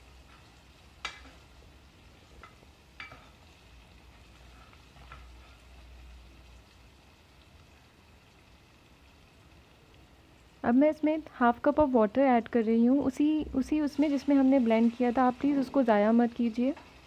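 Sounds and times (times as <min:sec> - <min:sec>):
faint sizzle: 0:00.0 - 0:17.0.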